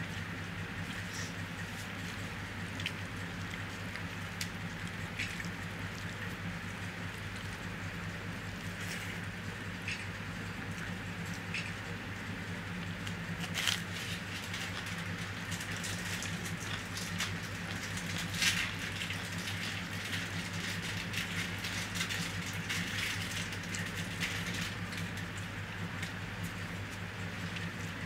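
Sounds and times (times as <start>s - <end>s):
fingers squishing through rice: 0.0s - 25.4s
wet chewing and lip smacking: 1.8s - 9.2s.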